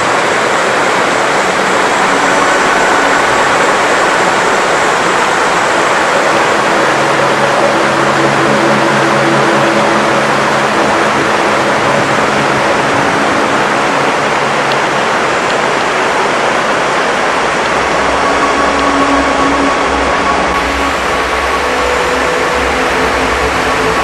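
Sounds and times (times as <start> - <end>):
loud rushing noise: 0.0 - 24.0.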